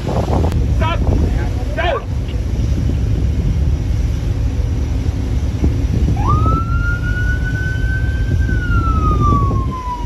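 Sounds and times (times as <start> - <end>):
boat engine rumbling: 0.0 - 10.0
wind: 0.0 - 10.0
police siren wailing: 6.2 - 10.0.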